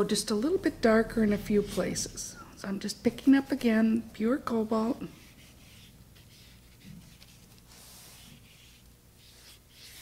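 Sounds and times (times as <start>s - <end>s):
brush strokes on paper: 5.1s - 10.0s.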